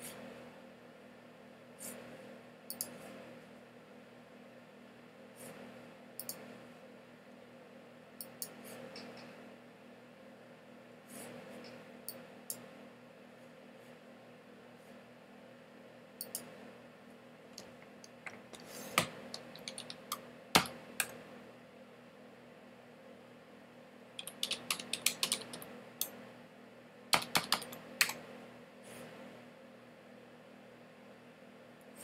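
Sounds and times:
computer keyboard typing: 0:17.6 - 0:21.2, 0:24.2 - 0:26.1, 0:27.1 - 0:28.2.

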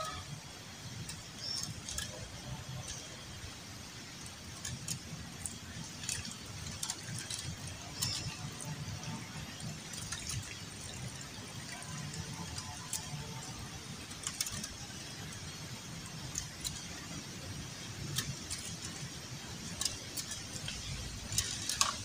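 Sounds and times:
water sloshing in plastic container: 0:04.2 - 0:15.3.

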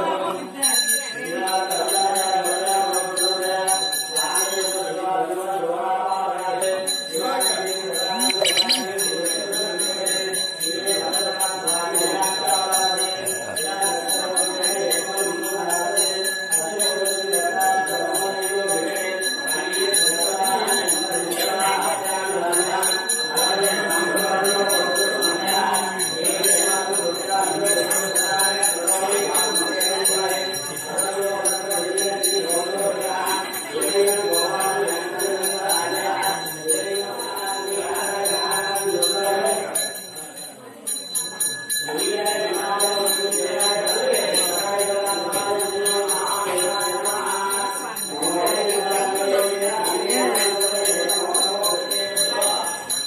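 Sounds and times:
mantras being chanted: 0:00.0 - 0:40.2, 0:41.8 - 0:53.0
brass bell rung rapidly: 0:06.9 - 0:33.3.

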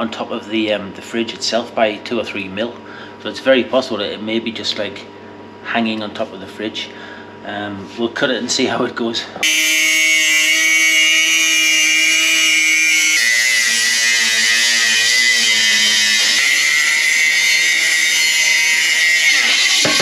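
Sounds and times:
angle grinder cutting metal: 0:09.4 - 0:20.0
sparks hissing: 0:09.6 - 0:20.0.

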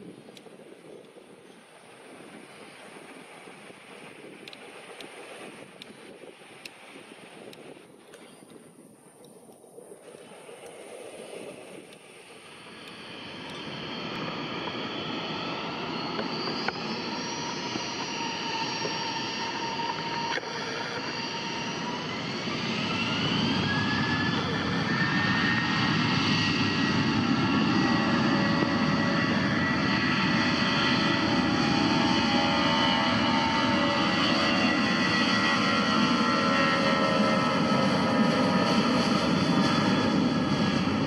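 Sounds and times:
jet engines spooling up: 0:00.1 - 0:41.0.

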